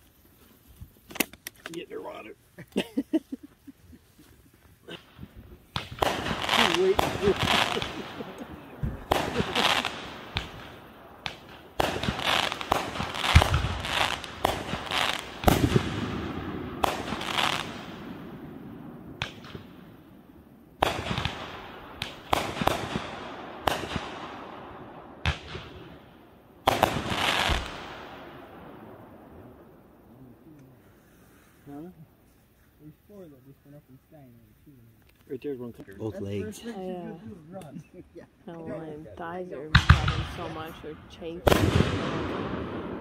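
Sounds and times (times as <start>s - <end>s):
fireworks bangs with crackling tail: 4.8s - 30.0s, 39.7s - 43.0s.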